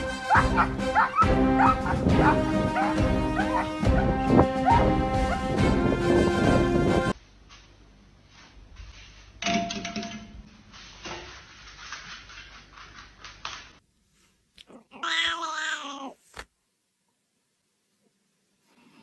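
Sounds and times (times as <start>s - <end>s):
cat meowing: 14.7s - 16.2s.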